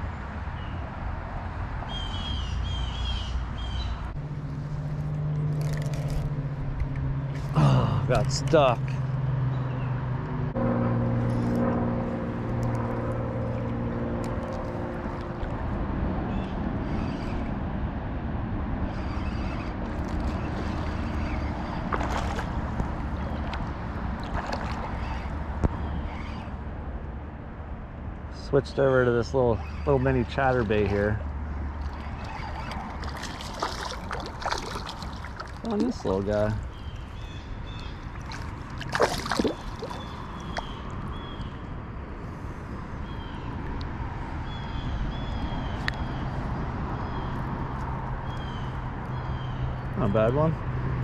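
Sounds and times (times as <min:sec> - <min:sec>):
low hum: 0:03.9 - 0:49.9
creek water flowing: 0:04.1 - 0:17.5, 0:18.8 - 0:26.8, 0:28.4 - 0:41.9
crackling splashes: 0:04.3 - 0:08.4, 0:12.3 - 0:15.6, 0:19.2 - 0:25.8, 0:30.3 - 0:41.1
songbird chirping: 0:32.0 - 0:41.6.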